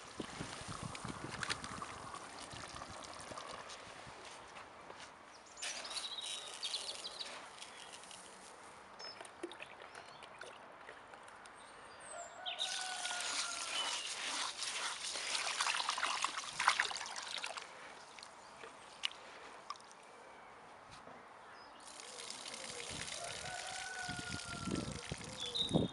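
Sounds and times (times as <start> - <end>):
water pouring into bowl: 0.0 - 3.7, 12.6 - 17.6, 21.9 - 25.5
hand swishing rice in water: 13.2 - 17.6.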